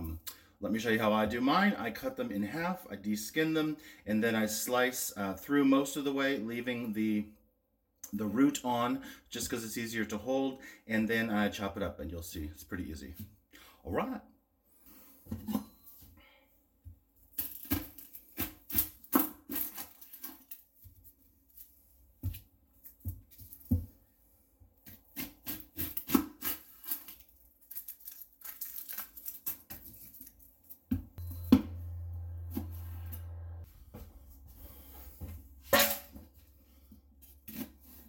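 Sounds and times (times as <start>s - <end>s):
low steady hum: 31.2s - 36.5s.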